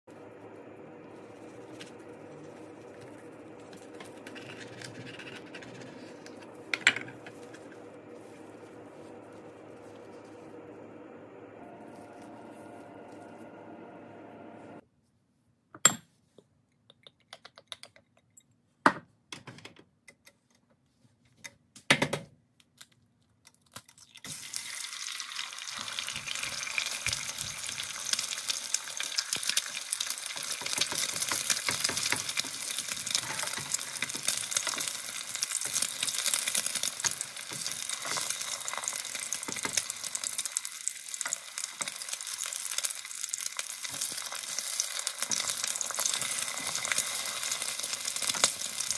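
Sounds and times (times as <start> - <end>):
egg sizzling in hot oil: 24.0 - 48.9.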